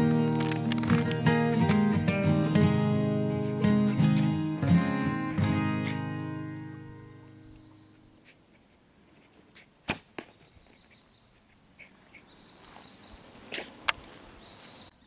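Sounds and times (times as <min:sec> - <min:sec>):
bow string snapping: 0:00.2 - 0:01.3
arrow hitting target: 0:09.8 - 0:10.4.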